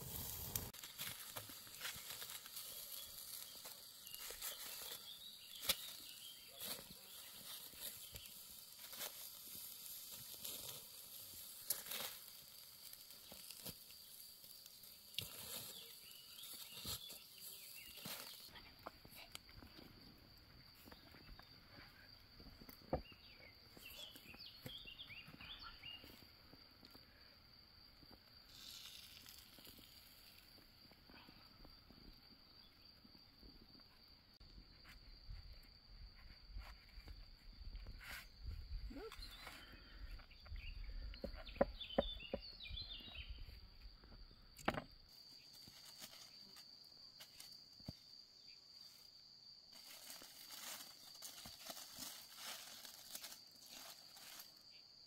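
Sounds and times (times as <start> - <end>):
campfire crackling: 0.0 - 18.6, 28.0 - 32.3
foil crackling: 0.0 - 18.6, 28.5 - 30.5
bird chirps: 22.9 - 26.2, 39.0 - 43.6
high insect buzz: 28.4 - 31.8.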